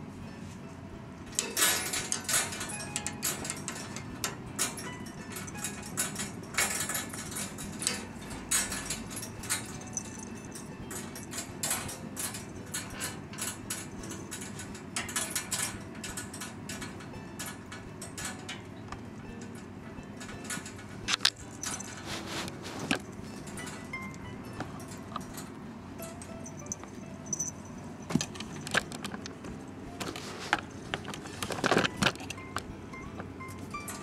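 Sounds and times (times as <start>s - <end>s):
wire pet cage rattling: 1.3s - 34.0s.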